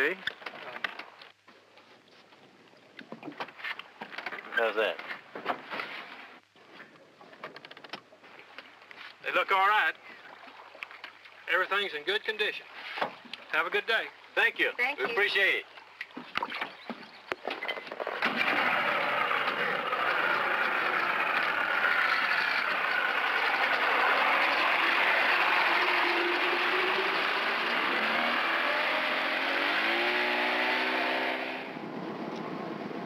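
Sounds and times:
outboard motor running: 16.6s - 32.3s.

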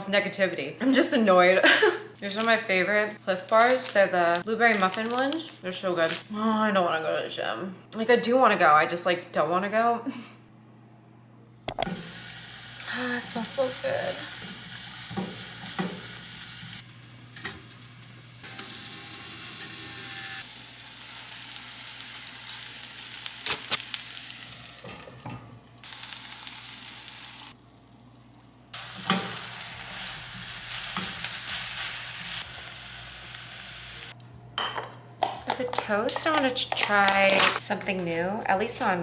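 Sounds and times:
vegetables sizzling in a frying pan: 11.8s - 34.2s.

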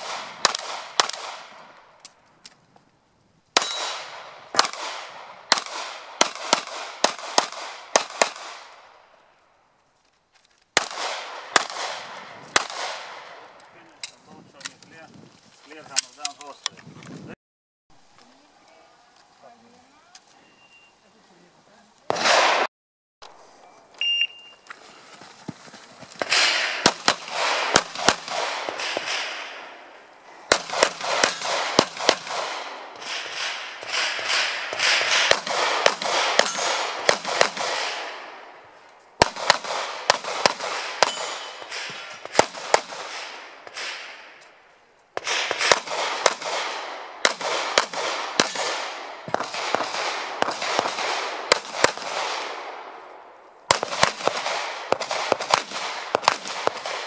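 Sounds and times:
pistol shots with echo: 0.0s - 1.7s, 3.6s - 8.9s, 10.8s - 13.6s, 22.1s - 22.7s, 26.2s - 29.9s, 30.5s - 38.6s, 39.2s - 44.4s, 45.2s - 53.0s, 53.7s - 57.0s
shot timer beep: 24.0s - 24.6s.

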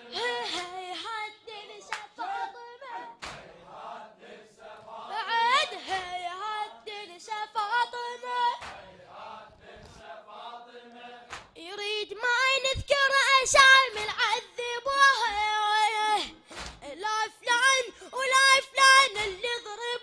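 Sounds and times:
chest slaps: 3.2s - 3.5s, 8.6s - 8.9s, 11.3s - 11.6s, 16.5s - 16.8s
men chanting a mourning lament: 8.6s - 11.3s.

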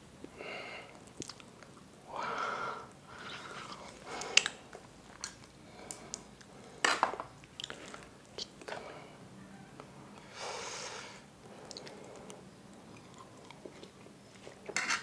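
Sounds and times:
soft squishing of food: 0.2s - 2.1s, 2.8s - 9.0s, 11.4s - 15.0s.

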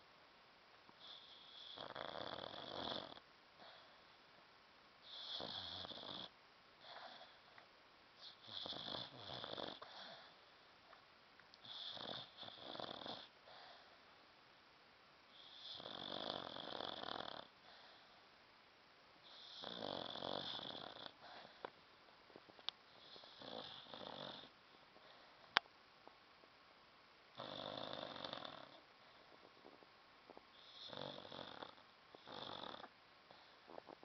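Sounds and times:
dog snoring: 1.0s - 4.0s, 5.0s - 7.6s, 8.2s - 10.5s, 11.6s - 14.0s, 15.3s - 18.2s, 19.2s - 21.7s, 22.9s - 25.3s, 27.3s - 34.0s.

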